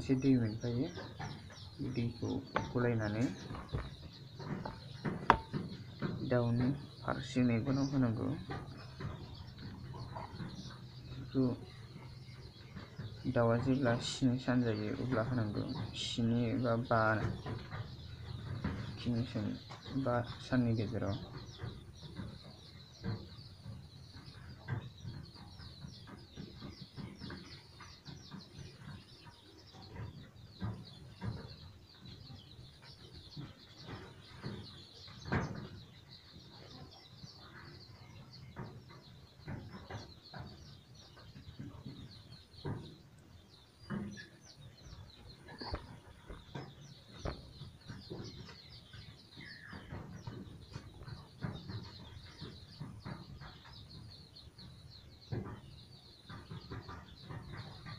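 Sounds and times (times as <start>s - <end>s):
chicks peeping: 0.0s - 57.9s
knocks and clicks: 0.1s - 16.6s.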